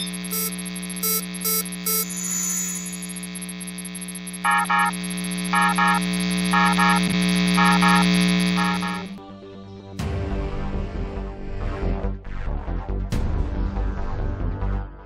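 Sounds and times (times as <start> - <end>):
double beep: 0.0 - 9.1
low electronic drone: 0.0 - 9.2.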